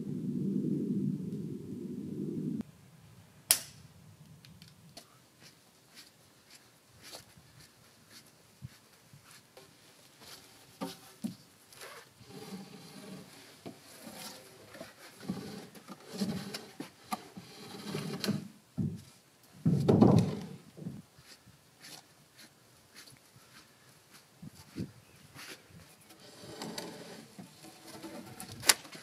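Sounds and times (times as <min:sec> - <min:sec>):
wooden poles knocking and scraping: 0:09.6 - 0:11.5, 0:12.2 - 0:20.9, 0:26.0 - 0:29.0.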